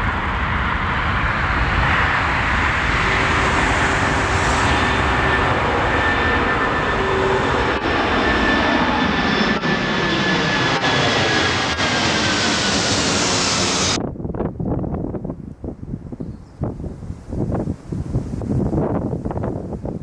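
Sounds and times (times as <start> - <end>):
high jet whine: 0.0 - 14.5
jet airliner roar: 0.0 - 20.0.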